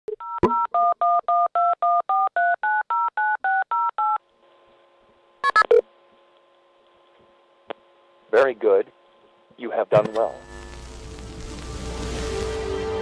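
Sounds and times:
telephone keypad dialing beeps: 0:00.1 - 0:04.2, 0:05.4 - 0:05.8
faint line hum: 0:04.2 - 0:13.0.

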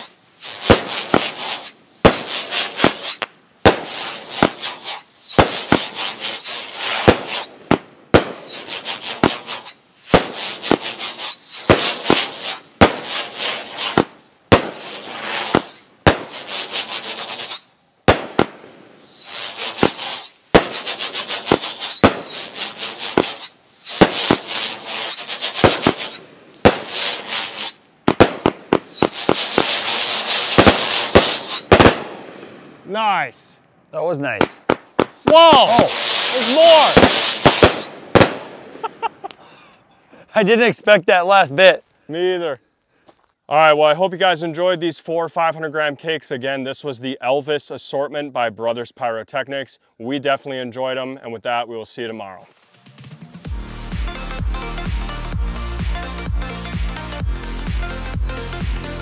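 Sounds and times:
firework bangs with crackle: 0:00.0 - 0:32.8, 0:34.3 - 0:39.5
firework cracks: 0:00.0 - 0:39.8.

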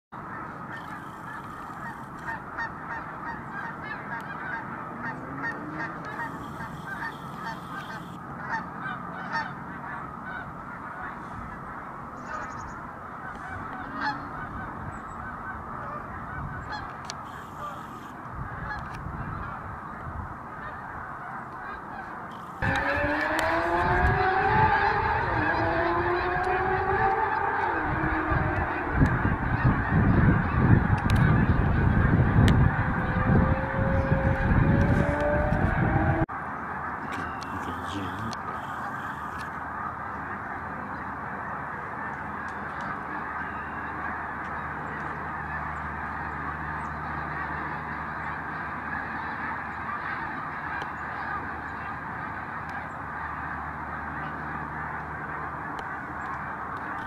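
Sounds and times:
flock of geese honking: 0:00.2 - 0:57.0
rising pitched hum: 0:22.3 - 0:36.3
low rumble: 0:27.7 - 0:36.3.

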